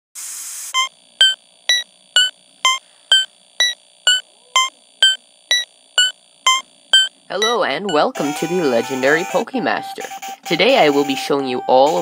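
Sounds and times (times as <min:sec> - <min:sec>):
synthesizer beeps: 0:00.7 - 0:09.4
faint electronic hum: 0:00.8 - 0:09.9.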